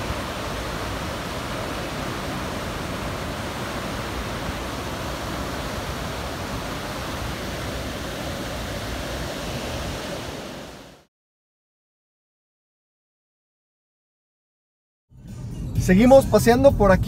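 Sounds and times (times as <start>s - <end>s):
ocean waves breaking: 0.0s - 11.1s.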